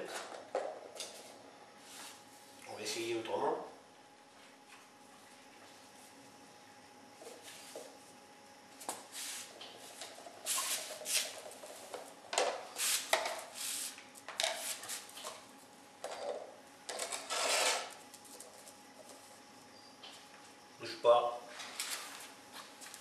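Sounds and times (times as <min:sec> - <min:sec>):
objects set down on tiled floor: 0:08.8 - 0:13.6, 0:16.0 - 0:19.2
plastic cups rustling and scraping: 0:09.1 - 0:19.3.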